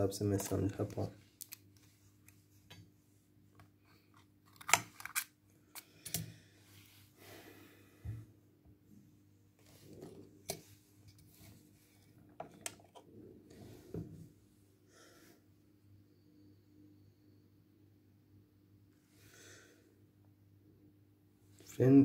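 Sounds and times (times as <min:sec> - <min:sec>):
faint steady hum: 0:00.0 - 0:22.0
clicks and snaps of phone parts: 0:04.5 - 0:05.3.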